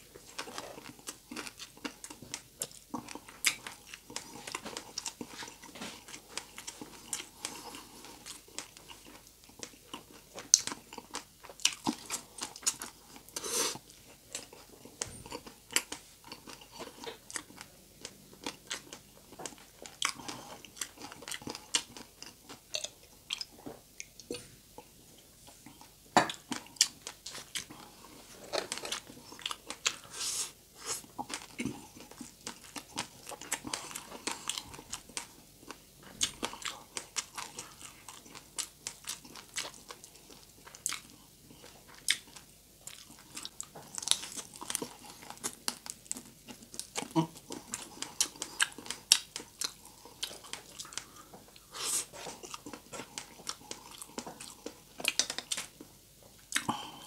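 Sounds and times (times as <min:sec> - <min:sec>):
wet chewing: 0:30.8 - 0:55.8
crunching fried food: 0:30.8 - 0:55.9.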